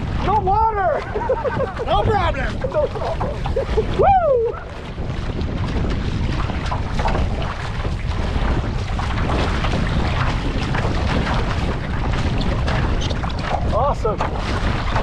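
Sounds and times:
sea water splashing: 0.0 - 15.0
wind on microphone: 0.0 - 15.0.

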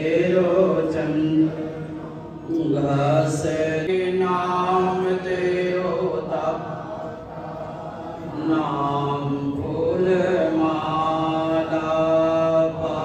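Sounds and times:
person chanting hymns: 0.0 - 13.0.

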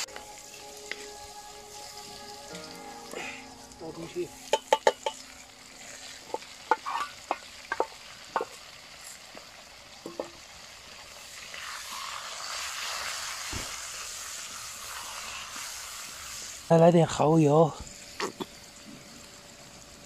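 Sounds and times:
frying sizzle: 0.0 - 20.0
utensils knocking against wok: 4.5 - 5.2, 6.3 - 8.6, 10.1 - 10.4.

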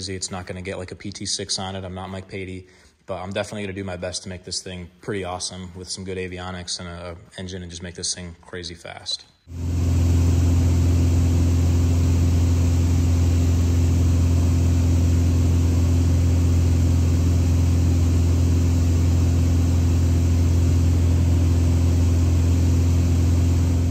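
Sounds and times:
airplane engine and propeller drone: 9.5 - 23.9.

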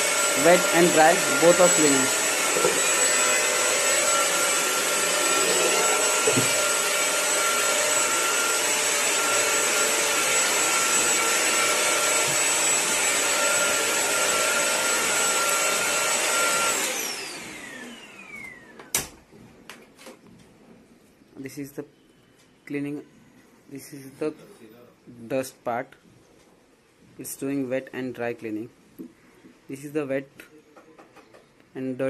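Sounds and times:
floor cleaner motor whining: 0.0 - 18.9.

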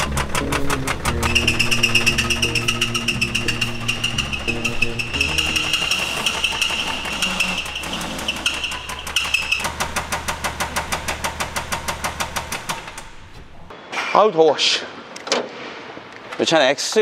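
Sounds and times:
diesel engine knocking: 0.0 - 13.3.

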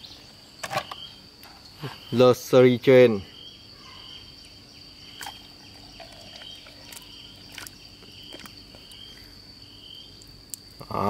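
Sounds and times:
insects trilling: 0.0 - 11.0
insect pulsing: 3.3 - 11.0.

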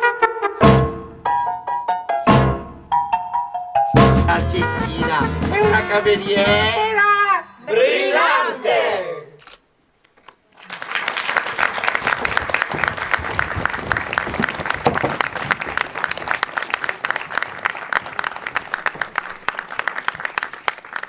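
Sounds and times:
audience applauding: 10.5 - 21.0.

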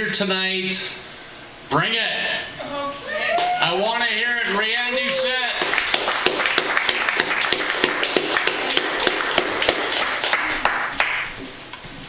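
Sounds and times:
audience applauding: 5.4 - 11.4.

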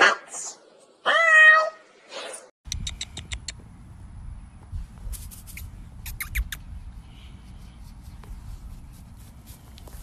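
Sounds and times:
wind rumble on microphone: 2.7 - 10.0
high squeaky chirps: 5.5 - 6.7.

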